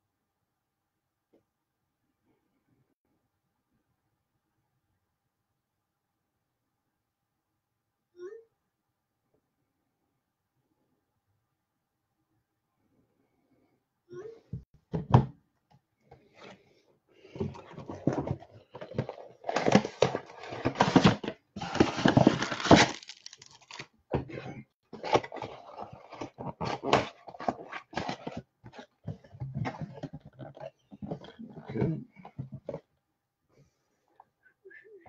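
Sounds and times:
packaging rustling and crinkling: 0:17.4 - 0:23.9, 0:24.9 - 0:31.3.

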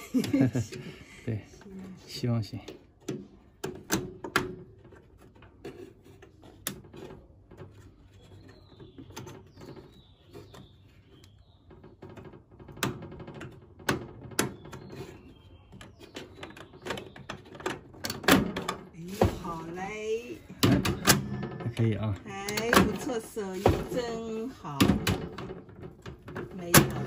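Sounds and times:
plastic clicks and knocks: 0:02.6 - 0:18.9.

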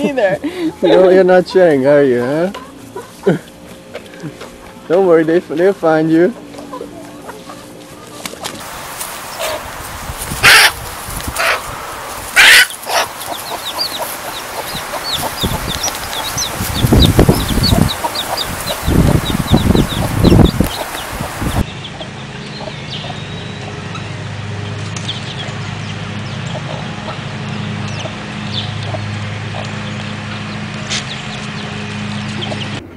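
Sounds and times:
chicks peeping: 0:00.6 - 0:32.9
hen clucking: 0:06.3 - 0:23.2
low rumbling noise: 0:08.6 - 0:32.9
hen squawking: 0:09.3 - 0:21.6.

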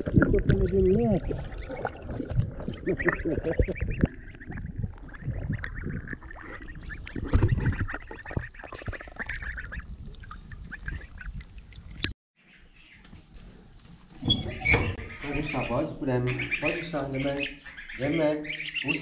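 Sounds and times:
water lapping and splashing: 0:00.0 - 0:12.1
goslings peeping: 0:02.7 - 0:09.9, 0:12.4 - 0:13.0, 0:14.2 - 0:19.0.

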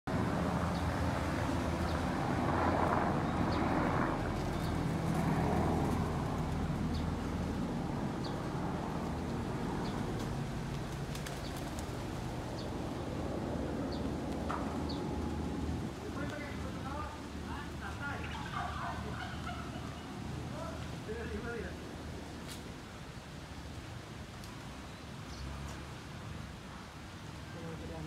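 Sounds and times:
low outdoor rumble: 0:00.1 - 0:22.4.

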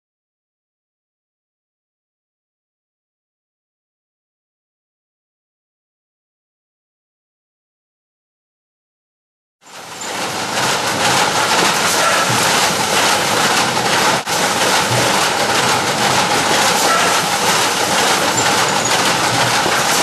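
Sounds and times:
fruit weighing machine rattling: 0:09.7 - 0:20.0.

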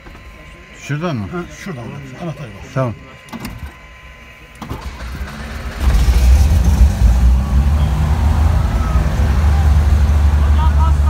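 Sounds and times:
aircraft piston engine running: 0:00.0 - 0:11.0
engine starter cranking: 0:04.6 - 0:08.6.

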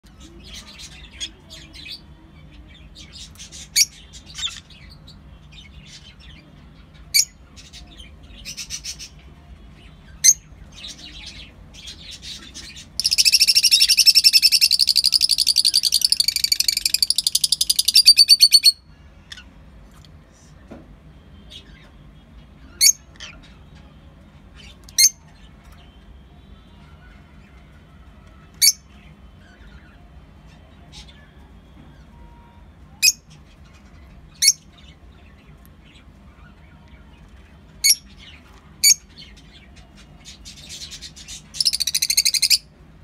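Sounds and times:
lovebirds chirping: 0:00.1 - 0:19.6, 0:28.4 - 0:42.7
rapid bird chatter: 0:06.8 - 0:19.5, 0:37.8 - 0:42.6
shrill bird calls: 0:12.9 - 0:18.9, 0:40.8 - 0:42.7.

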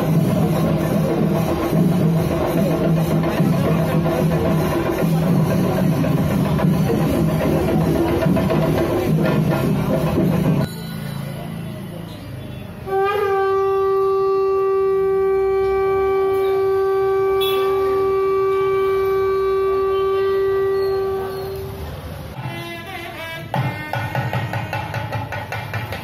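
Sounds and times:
conch shell blown: 0:12.9 - 0:24.5.

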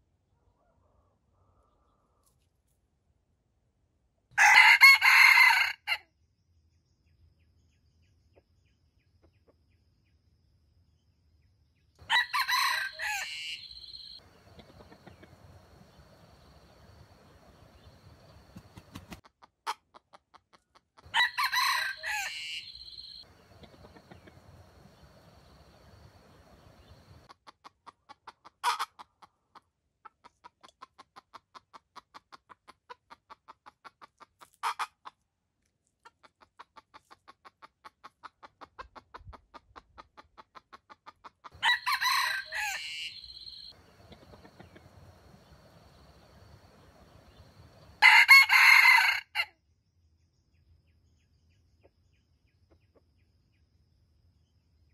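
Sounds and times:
rooster crowing: 0:04.4 - 0:06.0, 0:12.0 - 0:19.0, 0:21.1 - 0:27.3, 0:41.6 - 0:49.5
brief sharp bird calls: 0:12.1 - 0:19.2, 0:21.6 - 0:27.3, 0:41.6 - 0:48.0.

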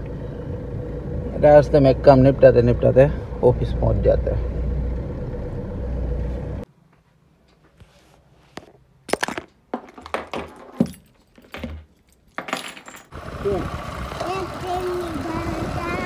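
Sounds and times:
car cabin road noise: 0:00.0 - 0:06.7, 0:13.2 - 0:16.0
keys clinking on wooden desk: 0:10.5 - 0:13.1.

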